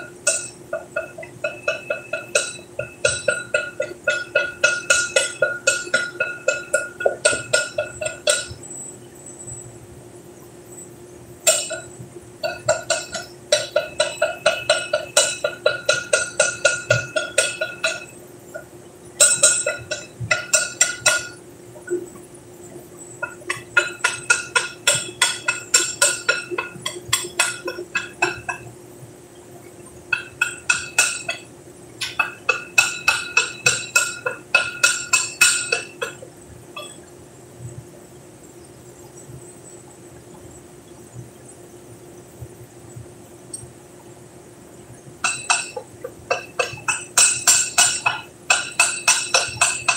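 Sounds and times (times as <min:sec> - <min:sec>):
hammer striking steel: 0:00.0 - 0:08.6, 0:11.5 - 0:18.2, 0:19.2 - 0:21.4, 0:23.2 - 0:28.6, 0:30.1 - 0:36.2, 0:45.2 - 0:49.9
faint steady hum: 0:00.0 - 0:49.9.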